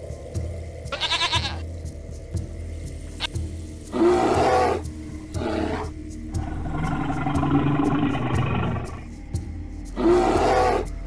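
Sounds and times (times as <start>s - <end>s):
bear roaring: 5.4s - 9.1s.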